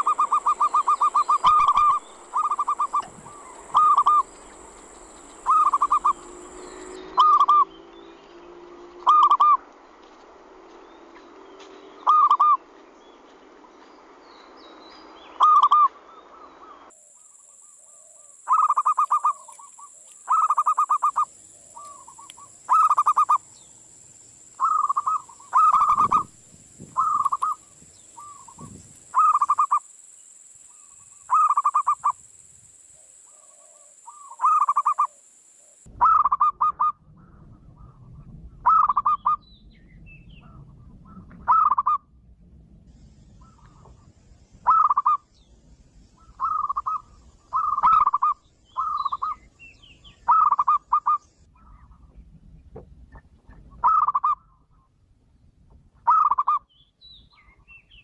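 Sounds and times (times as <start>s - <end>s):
dove cooing: 0.0s - 7.7s, 9.0s - 9.6s, 18.0s - 23.4s, 24.6s - 26.3s, 27.0s - 27.6s, 33.3s - 35.2s, 44.7s - 45.2s, 46.3s - 49.4s, 50.3s - 51.2s.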